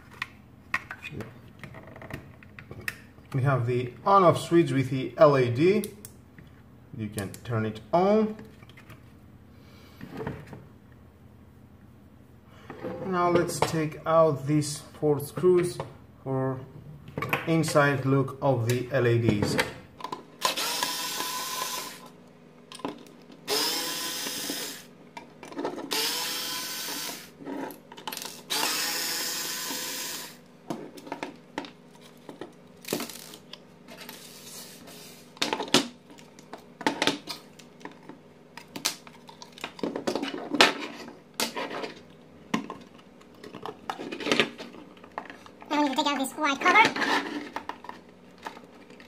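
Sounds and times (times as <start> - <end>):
cordless drill motor whine: 20.4 - 22.1, 23.5 - 24.9, 25.9 - 27.3, 28.4 - 30.4.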